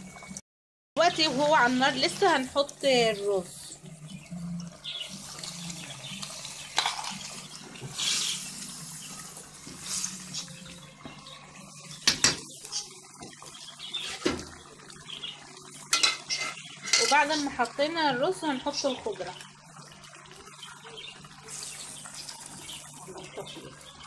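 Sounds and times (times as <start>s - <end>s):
sauce bubbling in a pot: 1.0s - 24.0s
rice pouring: 5.0s - 10.8s
knocks against a pot: 12.0s - 12.5s.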